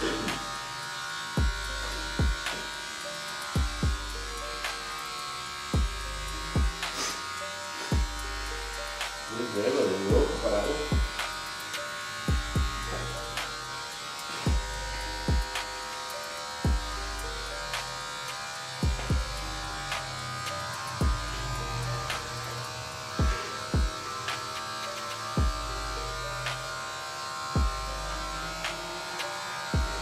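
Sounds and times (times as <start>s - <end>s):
electric hair clipper buzzing: 0.0s - 30.0s
music with deep bass hits: 1.4s - 2.7s, 3.5s - 4.8s, 5.6s - 7.0s, 7.9s - 9.3s, 10.1s - 11.4s, 12.2s - 13.5s, 14.5s - 15.9s, 16.7s - 18.0s, 18.8s - 24.0s, 25.4s - 26.6s, 27.6s - 28.8s, 29.8s - 30.0s.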